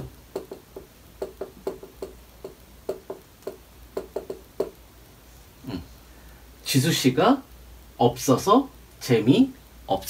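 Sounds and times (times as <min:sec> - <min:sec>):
marker tapping and scraping on whiteboard: 0:00.3 - 0:04.8.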